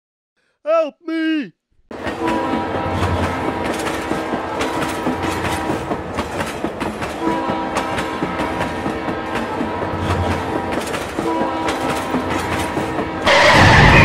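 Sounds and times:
train horn: 1.9s - 6.1s, 7.1s - 14.0s
train wheels clickety-clack: 1.9s - 13.6s.

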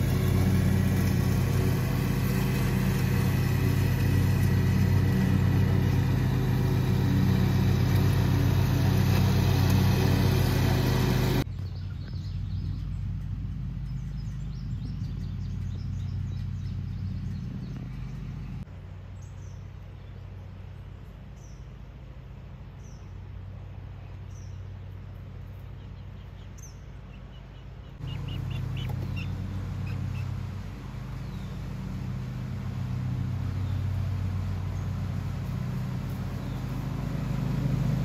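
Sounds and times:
lawn mower engine running: 0.0s - 11.5s, 28.0s - 38.0s
low rumble: 0.0s - 19.0s.

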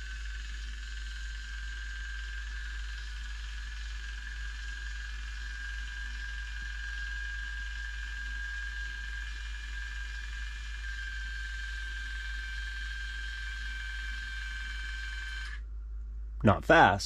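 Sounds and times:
electric gear motor whining: 0.0s - 15.6s.

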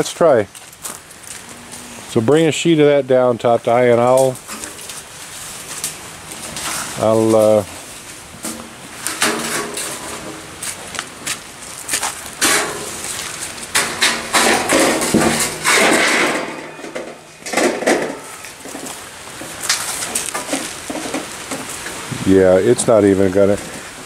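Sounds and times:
corrugated metal sheet clanking: 5.8s - 11.2s, 12.0s - 22.0s
metal sheet scraping and wobbling: 6.3s - 10.6s, 12.4s - 23.8s.

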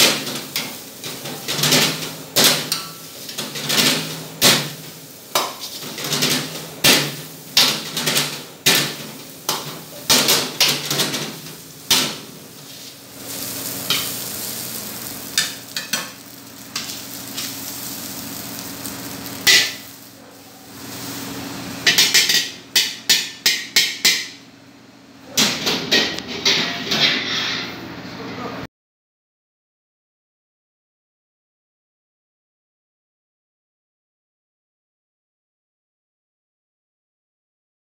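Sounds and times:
metal ladle scraping a wok: 5.4s - 17.8s, 25.9s - 27.9s.

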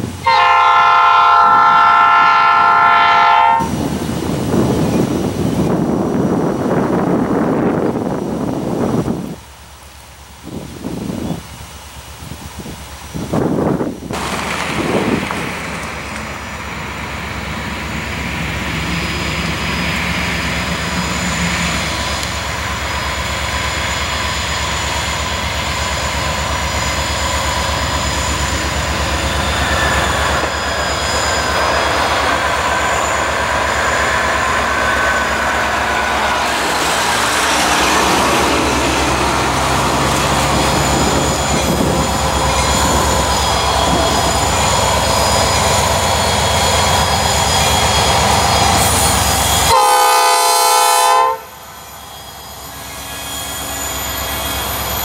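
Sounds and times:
diesel locomotive engine: 0.0s - 55.0s
steel wheels squealing: 15.7s - 49.8s, 51.5s - 55.0s.

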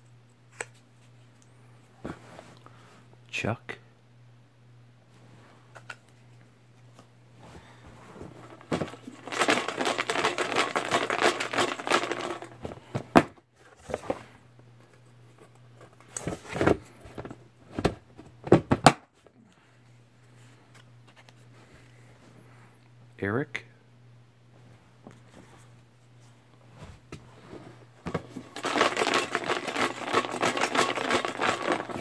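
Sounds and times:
paper crinkling: 28.5s - 32.0s.

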